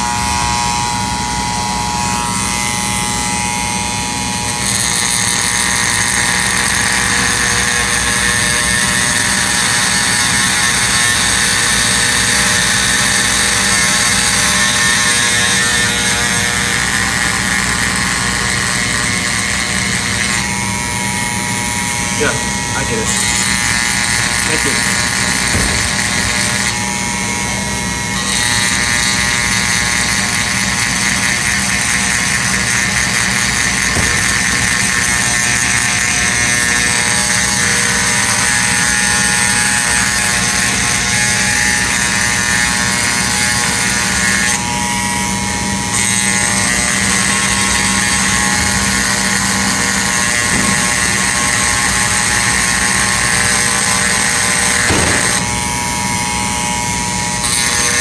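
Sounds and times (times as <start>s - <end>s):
rotary tool whining and grinding: 0.0s - 58.0s.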